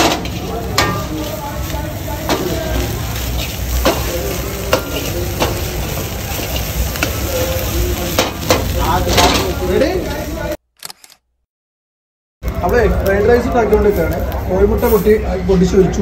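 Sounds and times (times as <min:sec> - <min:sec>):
metal ladle knocking wok: 0:00.0 - 0:09.7
gas burner rumble: 0:00.0 - 0:10.6
rice sizzling in a wok: 0:00.0 - 0:10.6.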